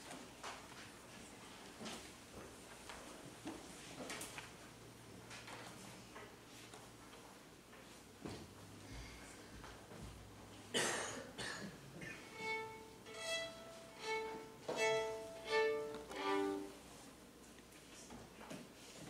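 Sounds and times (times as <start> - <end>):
solo violin playing: 12.2 - 16.8.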